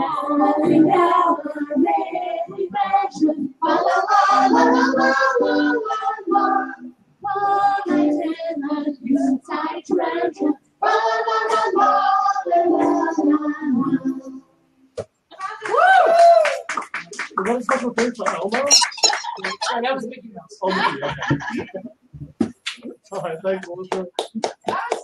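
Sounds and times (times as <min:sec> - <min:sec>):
woman singing: 0:00.0 - 0:14.5
acoustic guitar: 0:00.0 - 0:15.1.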